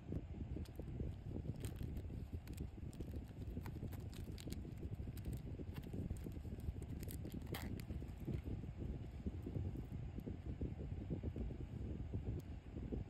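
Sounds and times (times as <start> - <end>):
plush pouch rustling: 0.7 - 8.5.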